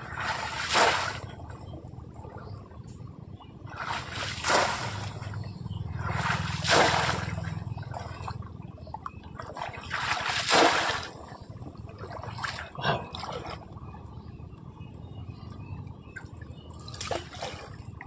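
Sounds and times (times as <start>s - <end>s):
water splashing: 0.0s - 1.8s, 3.7s - 13.9s, 16.6s - 18.0s.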